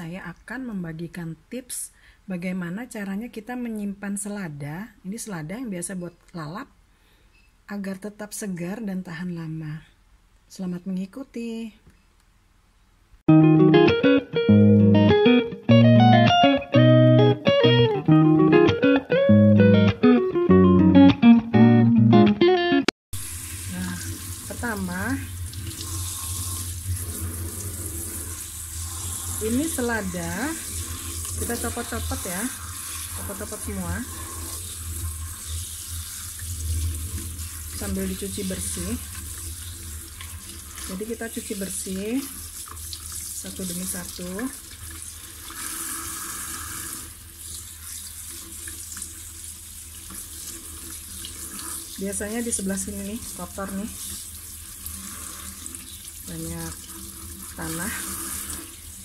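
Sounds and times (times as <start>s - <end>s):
faucet water splashing in sink: 23.2s - 59.0s.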